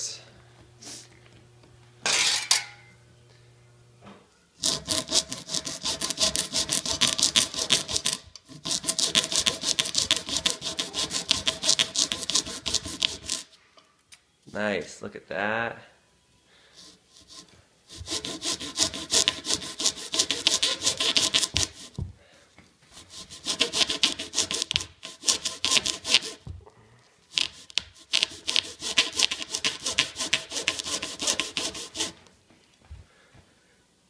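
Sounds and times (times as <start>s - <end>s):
hand saw rasping through baseball: 4.6s - 13.6s, 16.7s - 22.0s, 22.9s - 26.5s, 27.3s - 32.3s.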